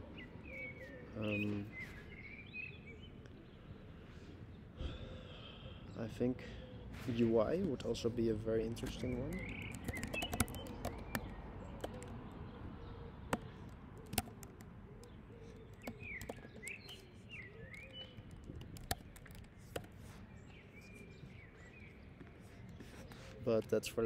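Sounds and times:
birds chirping: 0.0 - 24.0
sharp clicks: 8.8 - 12.2, 13.3 - 20.0.

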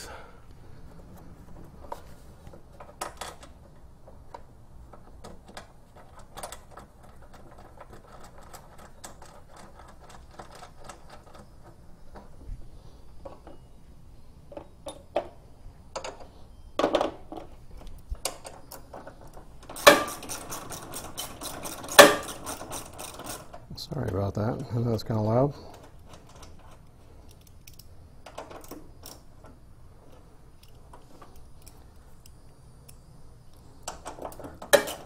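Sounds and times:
ratchet wrench clicking: 19.6 - 23.6
metal clatters: 33.9 - 35.0.

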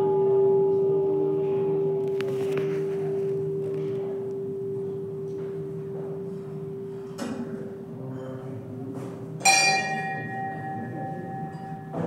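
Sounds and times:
bell-like ringing tone: 9.4 - 12.0.

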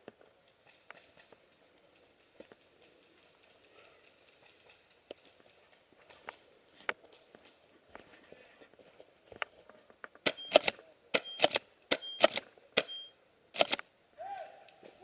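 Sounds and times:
airsoft shotgun fired and racked: 10.2 - 13.0, 13.6 - 13.8.

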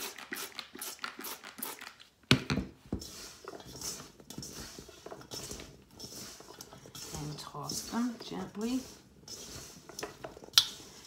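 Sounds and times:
potatoes rustling in steel bowl: 2.8 - 11.0
potatoes tossed against steel: 3.0 - 11.0.

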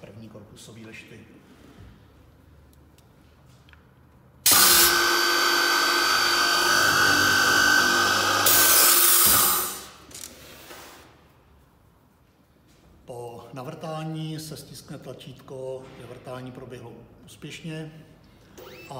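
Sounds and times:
boring machine motor: 4.5 - 10.0
drill bits boring into wood panel: 4.5 - 10.0.

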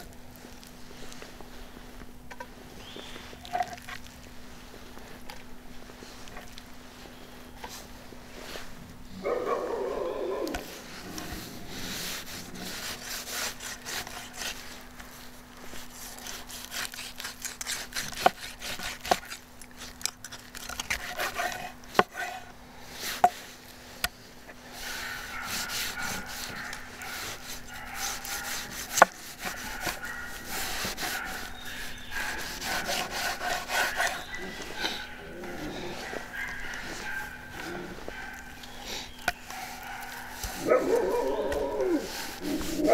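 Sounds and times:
cleaver cutting raw chicken: 11.8 - 15.0, 15.7 - 24.2, 25.2 - 42.9.

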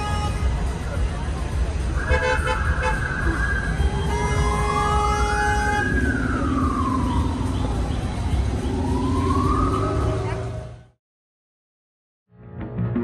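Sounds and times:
low traffic rumble: 0.0 - 11.0
emergency siren wailing: 2.0 - 11.0.

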